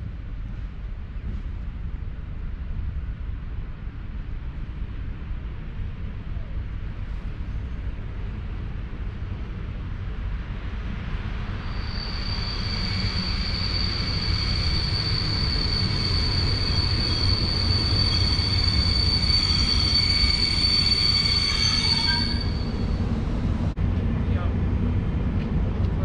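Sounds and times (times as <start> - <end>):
train rolling rumble: 0.0 - 26.0
wheels and brakes squealing: 11.5 - 23.1.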